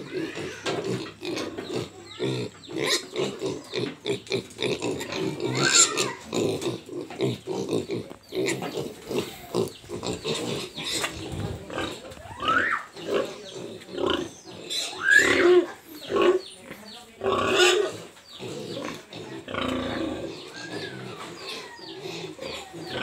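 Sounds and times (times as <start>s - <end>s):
piglet squealing: 0.0s - 3.4s, 4.9s - 6.3s, 12.2s - 13.2s, 14.7s - 15.8s
piglets grunting: 0.0s - 23.0s.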